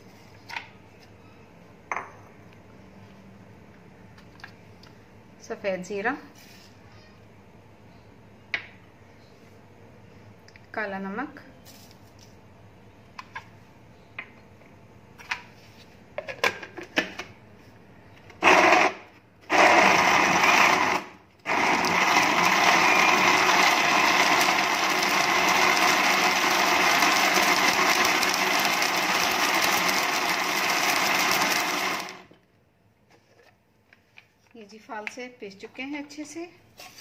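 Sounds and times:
blender grinding: 18.4s - 32.3s.

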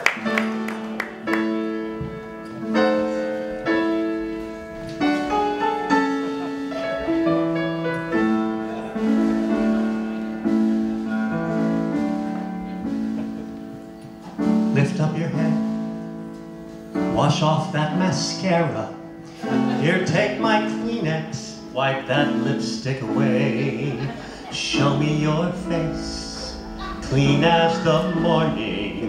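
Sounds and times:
keyboard ballad with band: 0.0s - 17.2s
man singing: 14.7s - 15.8s, 17.1s - 29.0s.

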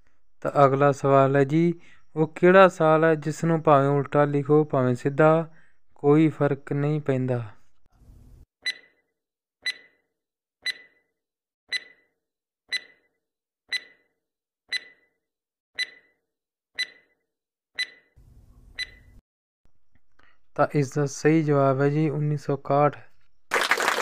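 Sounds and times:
clock-like ticks with ring: 8.7s - 9.0s, 9.6s - 10.0s, 10.6s - 11.0s, 11.7s - 12.1s, 12.7s - 13.1s, 13.7s - 14.1s, 14.7s - 15.1s, 15.8s - 16.2s, 16.8s - 17.1s, 17.8s - 18.1s.

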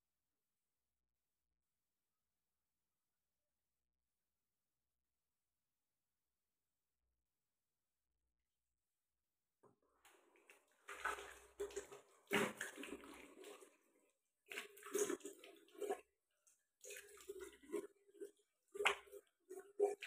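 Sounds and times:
water dripping: 10.0s - 20.0s
water splashing from a tap: 10.0s - 20.0s.

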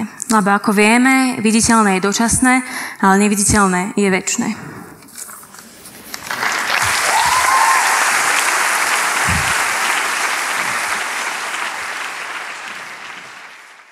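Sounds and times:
audience applauding: 6.1s - 13.9s.

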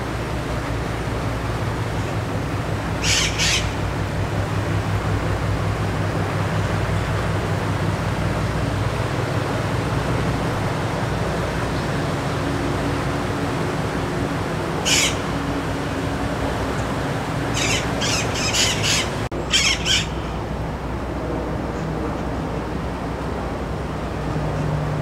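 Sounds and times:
boat engines humming: 0.0s - 25.0s
bird squawking: 3.0s - 3.8s, 14.8s - 15.3s, 17.5s - 20.4s.

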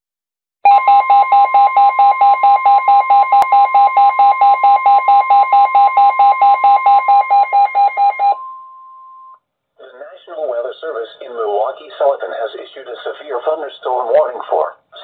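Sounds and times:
pulsing alarm beeps: 0.7s - 9.4s.

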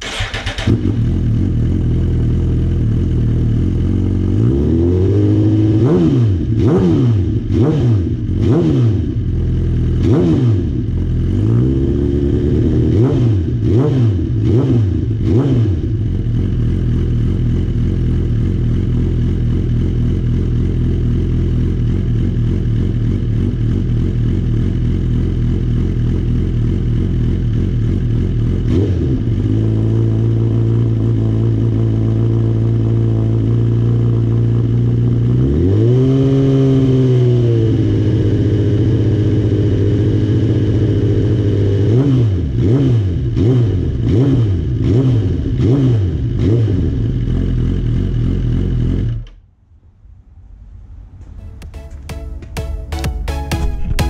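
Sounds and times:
motorcycle engine idling: 0.0s - 4.6s, 7.3s - 13.6s, 14.2s - 35.3s
motorcycle engine revving: 0.0s - 49.4s.

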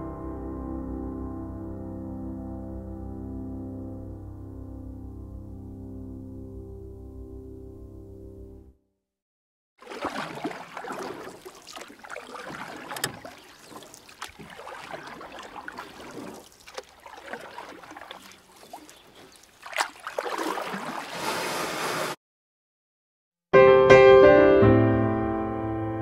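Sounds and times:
water and wind rushing: 9.8s - 22.2s.

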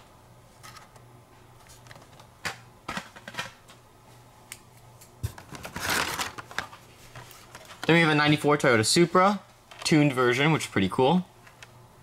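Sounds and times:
card and plastic rustling scrape: 5.3s - 8.0s.

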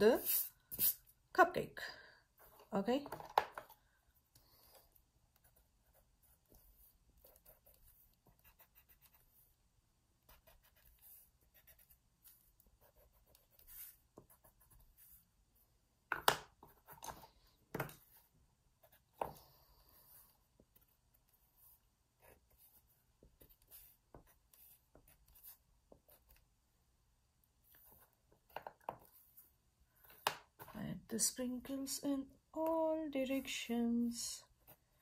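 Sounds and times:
pencil scratching on paper: 5.4s - 9.5s, 10.2s - 15.3s, 18.0s - 26.4s.

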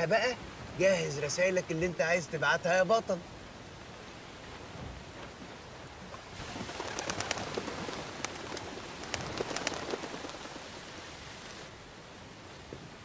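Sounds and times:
sea noise: 0.0s - 13.0s
wind noise: 3.4s - 13.0s
pigeon wings flapping: 6.4s - 11.7s.

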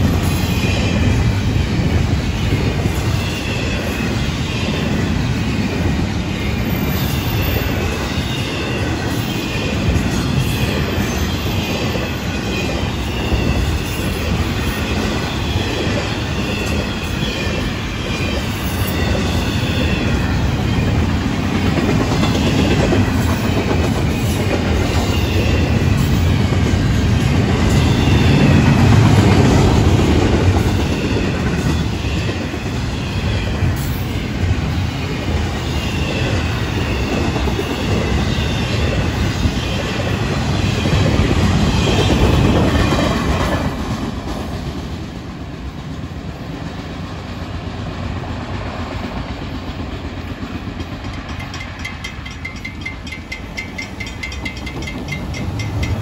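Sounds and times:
freight train wheels rumbling: 0.0s - 56.0s
wheel squeal whine: 6.1s - 21.3s.

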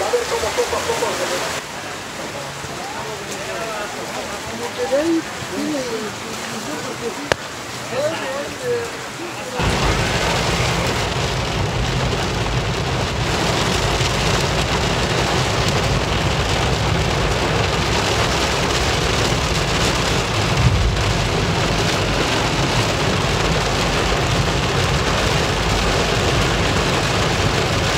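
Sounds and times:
heavy rain on car roof: 0.0s - 27.9s
low road rumble: 0.0s - 27.9s
low thump: 20.5s - 21.8s.

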